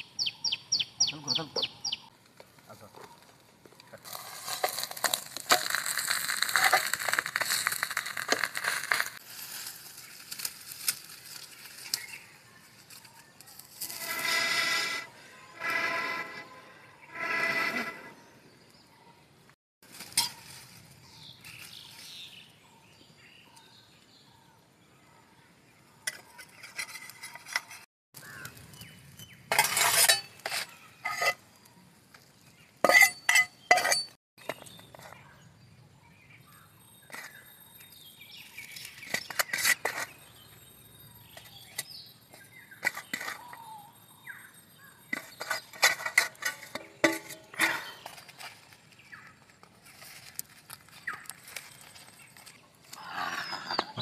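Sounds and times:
metal utensils and plates clinking: 29.5s - 31.4s, 32.8s - 34.7s, 45.1s - 48.5s.

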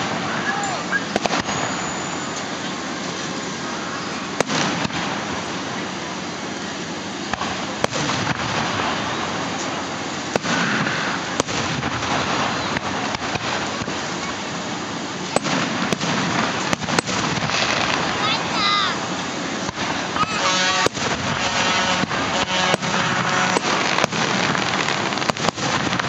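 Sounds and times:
fireworks bangs: 0.0s - 26.0s
steady background hiss: 0.0s - 26.0s.

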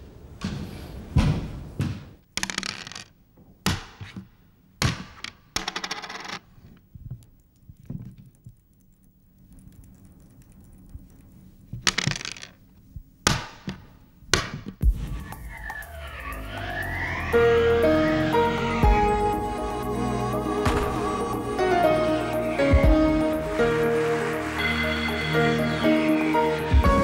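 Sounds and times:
dice and checkers clattering: 2.4s - 3.2s, 5.6s - 7.2s, 9.6s - 12.6s.

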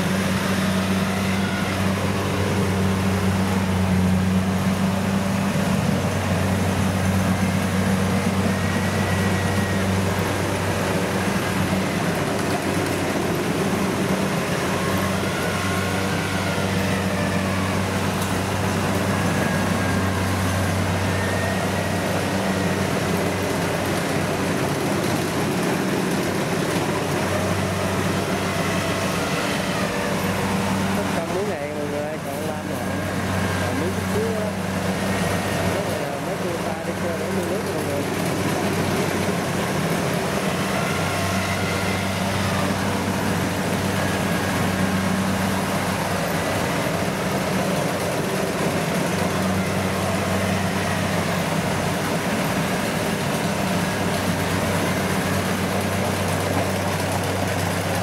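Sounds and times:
combine harvester diesel engine: 0.0s - 58.0s.

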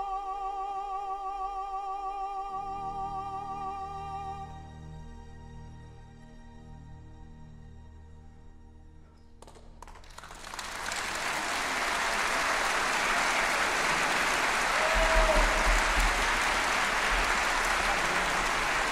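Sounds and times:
audience applauding: 9.4s - 18.9s.

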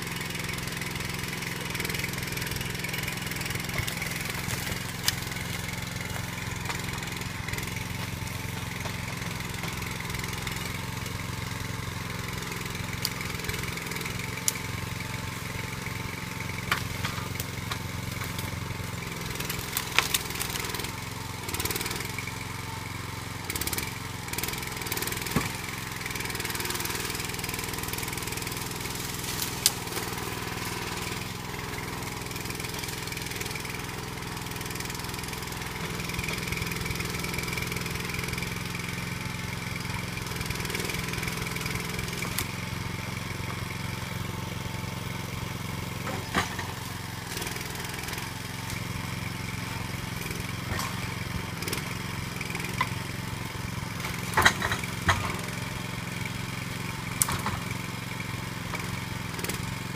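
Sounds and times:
small engine running: 0.0s - 59.9s
sharp knocks of logs: 1.0s - 11.1s, 16.6s - 22.1s, 23.6s - 38.4s, 46.0s - 49.0s, 54.0s - 55.7s, 57.1s - 57.8s.

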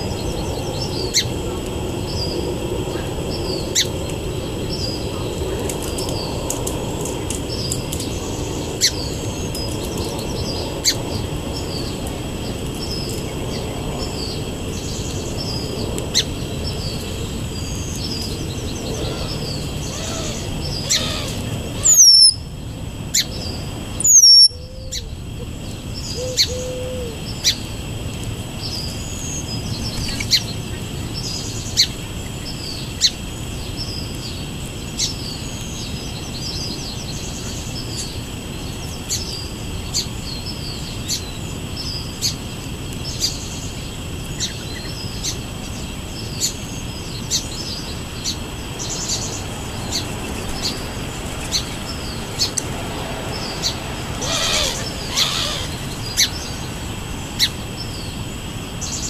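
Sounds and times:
high descending bird whistles: 21.8s - 22.4s, 24.0s - 25.0s
short high bird chirps: 21.8s - 22.4s, 24.1s - 24.5s.

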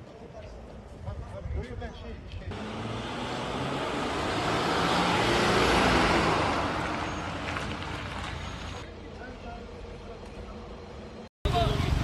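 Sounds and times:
truck driving past: 2.5s - 8.8s.

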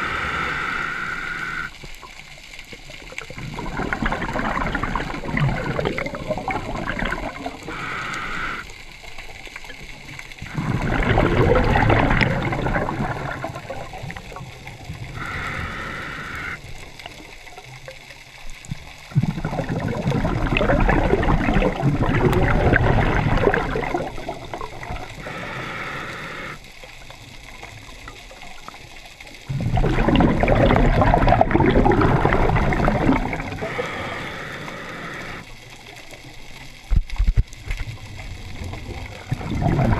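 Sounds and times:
regulator hissing inhale: 0.0s - 1.8s, 7.6s - 8.7s, 15.1s - 16.6s, 25.0s - 26.7s, 33.4s - 35.5s
exhaled bubbles underwater: 0.0s - 39.9s.

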